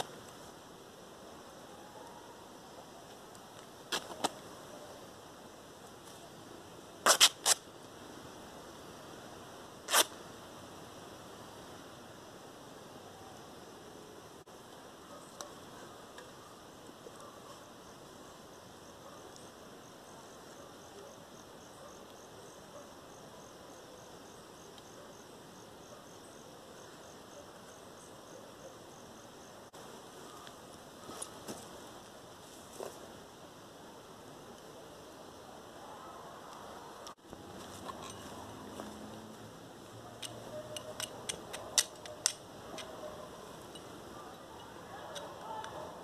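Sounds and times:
cricket chirping: 0:00.0 - 0:46.0
faint outdoor hiss: 0:00.0 - 0:46.0
denim cloth ripping: 0:07.1 - 0:07.6, 0:09.9 - 0:10.1.

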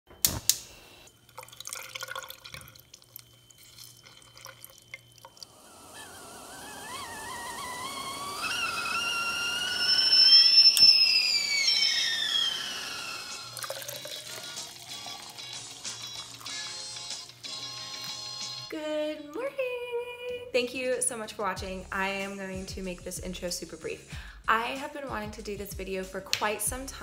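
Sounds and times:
citrus press clicks and drips: 0:00.2 - 0:05.5, 0:13.2 - 0:16.7
kettle whistling: 0:01.7 - 0:18.7.

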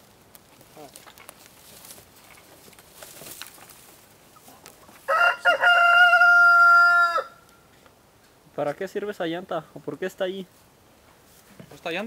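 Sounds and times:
rooster crowing: 0:05.0 - 0:07.6.

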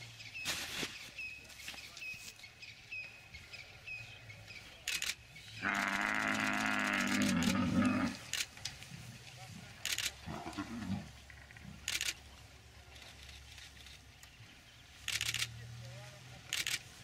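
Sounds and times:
buffalo bellowing: 0:05.6 - 0:08.3.

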